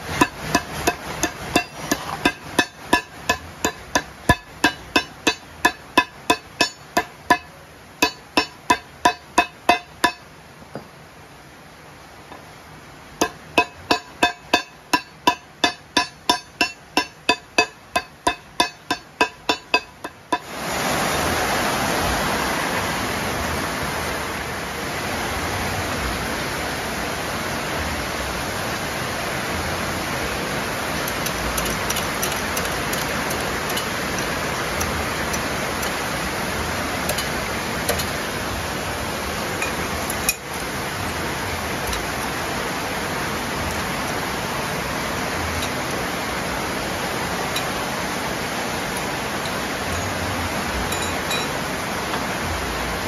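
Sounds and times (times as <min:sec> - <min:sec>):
steady rushing noise: 0:00.0 - 0:53.0
hammer striking steel: 0:00.1 - 0:10.2, 0:13.2 - 0:20.5, 0:31.0 - 0:36.0.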